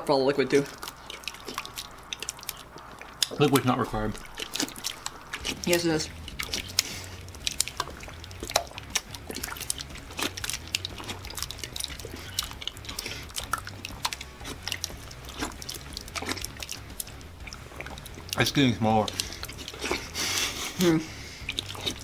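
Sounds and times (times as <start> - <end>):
faint low hum: 0.0 - 22.0
people slurping and chewing: 0.4 - 22.0.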